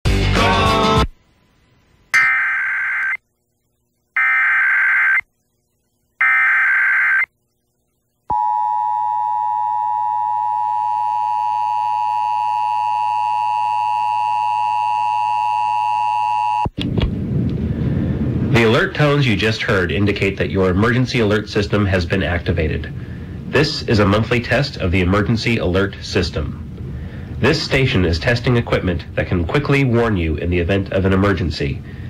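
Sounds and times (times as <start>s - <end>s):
screeching data tones: 2.1s - 3.2s, 4.2s - 5.3s, 6.2s - 7.3s
high two-tone alert signal: 2.2s - 3.2s.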